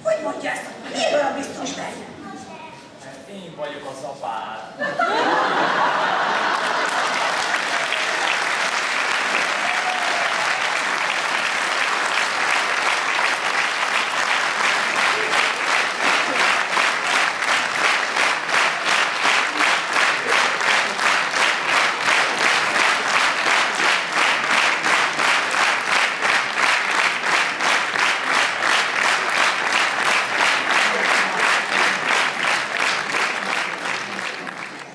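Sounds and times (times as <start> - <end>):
audience clapping in rhythm: 5.4 - 34.9.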